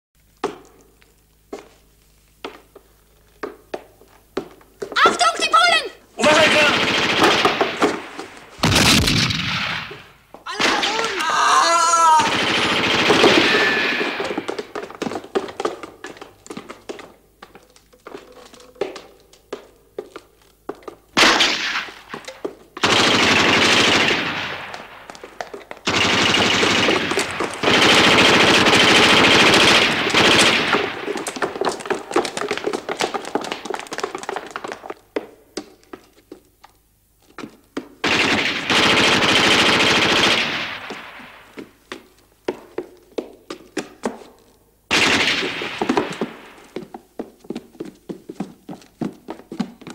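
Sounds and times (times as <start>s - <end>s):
automatic gunfire bursts: 6.2s - 10.9s, 12.2s - 14.8s, 21.2s - 22.1s, 22.8s - 31.8s, 38.0s - 41.5s, 44.9s - 46.6s
single gunshots: 6.3s - 11.2s, 12.2s - 14.6s, 21.2s - 22.2s, 44.9s - 46.6s.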